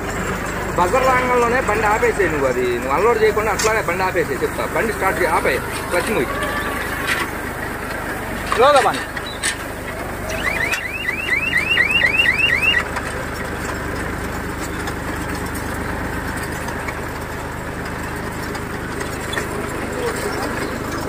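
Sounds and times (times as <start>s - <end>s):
tractor and baler running: 0.0s - 21.0s
warning buzzer chirping: 10.3s - 12.8s.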